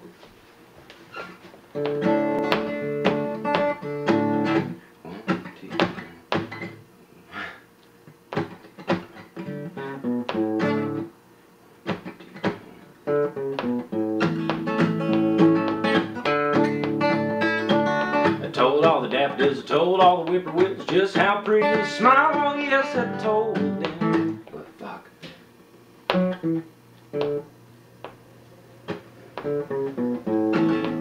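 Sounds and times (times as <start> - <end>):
fingerpicked acoustic guitar: 1.7 - 6.8, 8.3 - 11.1, 11.8 - 24.4, 26.1 - 27.5, 28.8 - 31.0.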